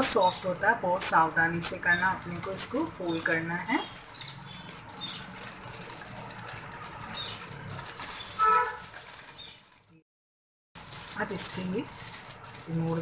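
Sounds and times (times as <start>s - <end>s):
aluminium foil crinkling: 0.0s - 10.0s, 10.8s - 13.0s.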